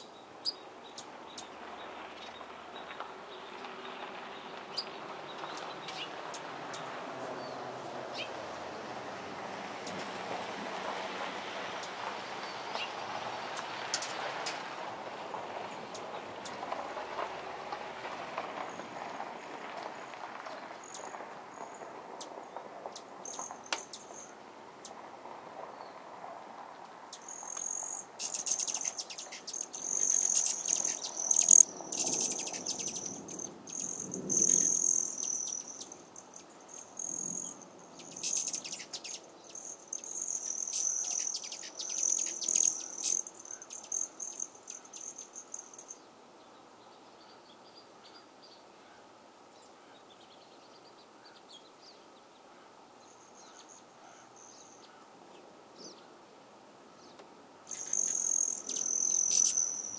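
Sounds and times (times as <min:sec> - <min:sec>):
soft outdoor ambience: 0:00.0 - 0:59.9
insect trilling: 0:27.2 - 0:46.0, 0:57.7 - 0:59.9.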